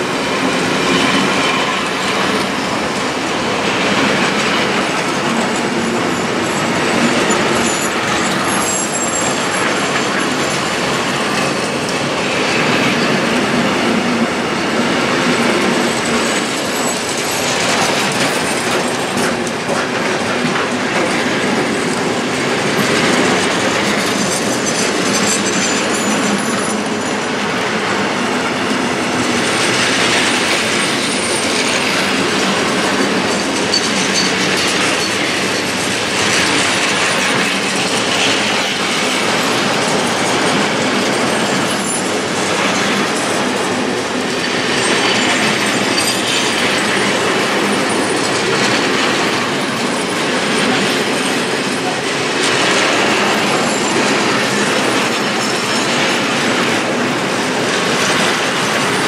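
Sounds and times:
train wheels rumbling on rails: 0.0s - 59.0s
faint high wheel squeal: 6.2s - 10.5s.

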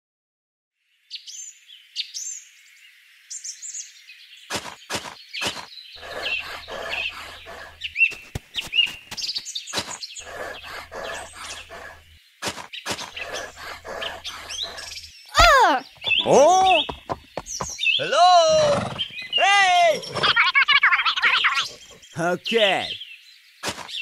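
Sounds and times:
small birds chirping: 0.9s - 24.0s
hoe scraping sand and gravel: 4.5s - 15.1s.

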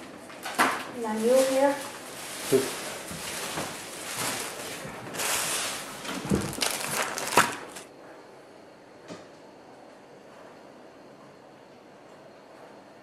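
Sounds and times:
plastic wrapping crinkling: 0.9s - 7.9s.

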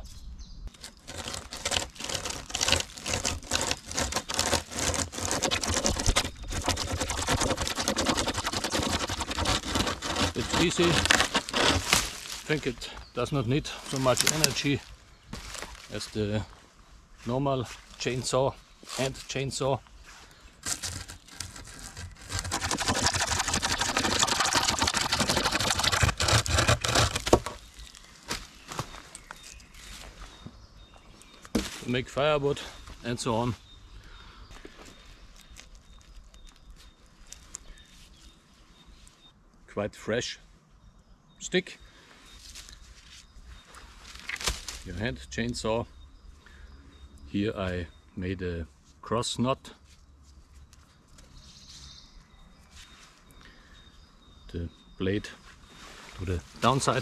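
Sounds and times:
wood cracking and snapping: 0.7s - 12.6s, 20.6s - 29.3s, 44.2s - 44.9s
chain saw rasping through log: 0.8s - 12.7s, 20.6s - 27.6s.

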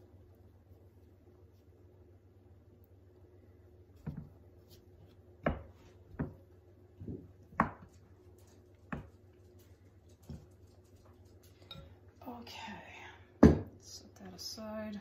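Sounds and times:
dull knocks of dough being worked: 3.9s - 9.4s.

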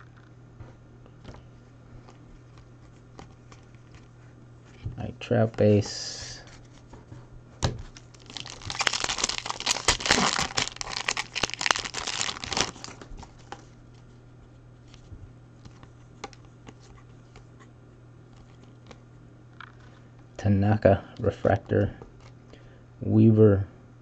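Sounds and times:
foil wrapper tearing and crinkling: 7.9s - 13.6s.

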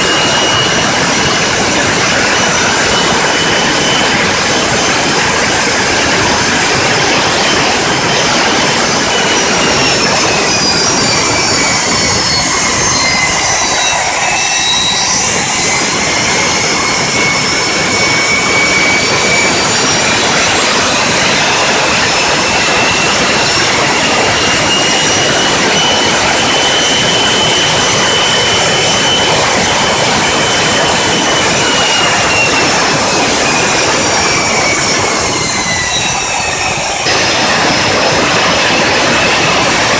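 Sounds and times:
jet engine running: 0.0s - 39.9s.

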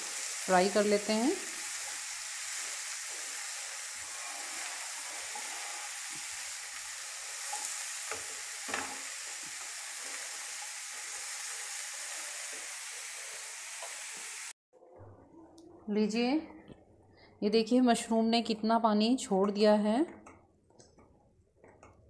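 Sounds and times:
mushrooms sizzling in hot oil: 0.0s - 14.6s
spatula scraping pan: 1.9s - 14.2s.

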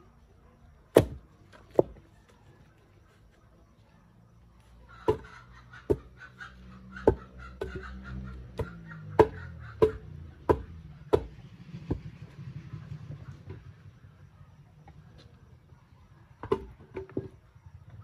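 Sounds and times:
wooden pole knocking on stone: 5.1s - 5.3s.

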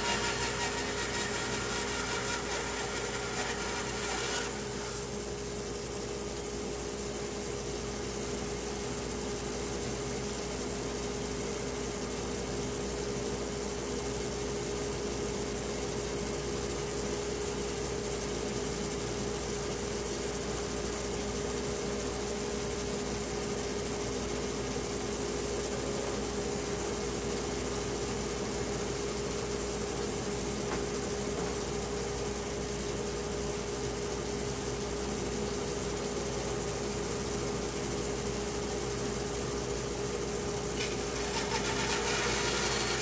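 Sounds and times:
machine hum: 0.0s - 6.5s, 40.2s - 43.0s.

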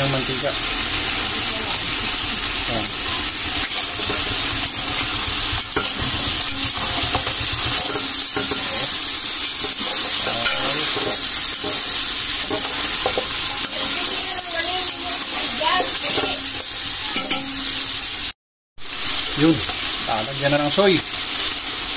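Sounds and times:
meat sizzling in fat: 0.0s - 21.9s
metal spatula scraping pot: 3.0s - 17.8s.

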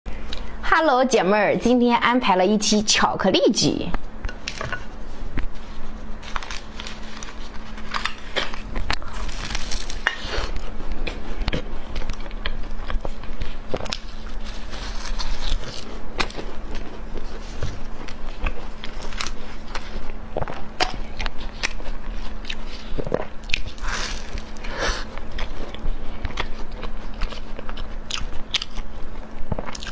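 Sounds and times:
biting and chewing cake: 5.3s - 29.9s.

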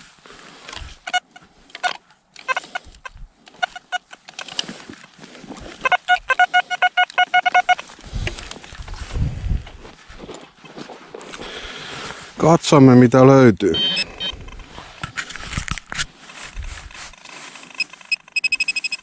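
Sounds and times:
rustling and handling noise: 0.0s - 12.4s, 13.7s - 19.0s
metal detector beeping: 0.8s - 4.4s, 5.7s - 8.4s, 13.7s - 14.7s, 17.1s - 19.0s.

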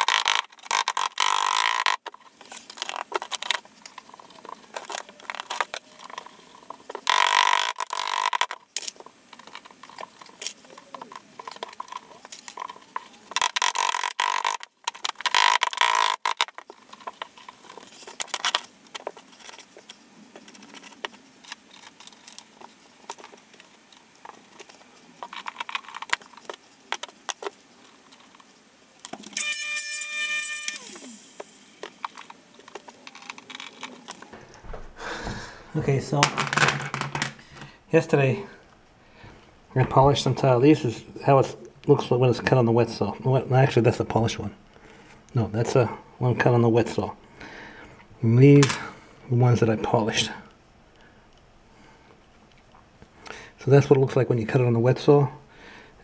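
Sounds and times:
tape pulled off roll rasping: 0.0s - 35.8s
short squeal: 29.3s - 31.8s.

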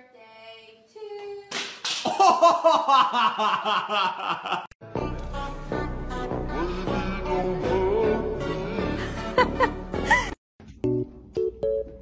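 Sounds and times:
loud laughter: 2.1s - 4.8s, 9.2s - 10.4s.

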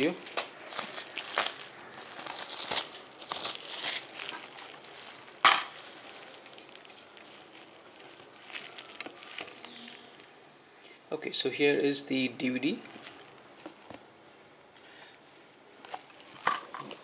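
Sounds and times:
plastic wrapping crinkling: 0.0s - 10.3s, 12.7s - 14.0s, 15.8s - 17.0s.

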